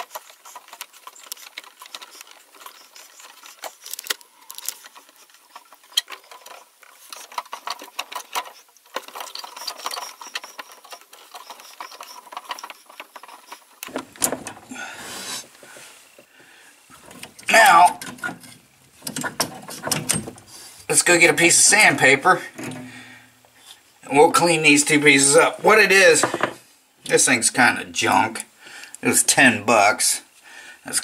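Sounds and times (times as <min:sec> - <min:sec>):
metal tools clicking and rattling: 0:00.0 - 0:14.7, 0:17.0 - 0:20.6
rustling and knocking: 0:00.0 - 0:16.3, 0:16.9 - 0:20.8, 0:26.2 - 0:26.7.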